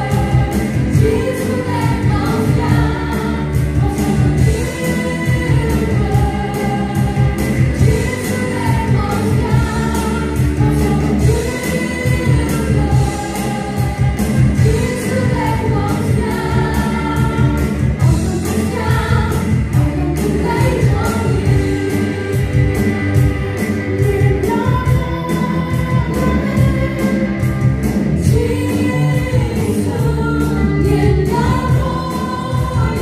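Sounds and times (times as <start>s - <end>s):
band playing: 0.0s - 33.0s
group singing gospel song: 0.0s - 33.0s.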